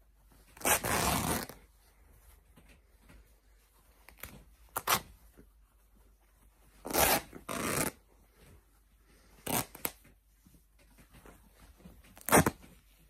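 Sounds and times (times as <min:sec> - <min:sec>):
fabric ripping: 0:00.6 - 0:01.6, 0:04.1 - 0:05.1, 0:06.8 - 0:08.0, 0:09.4 - 0:10.0, 0:12.2 - 0:12.6.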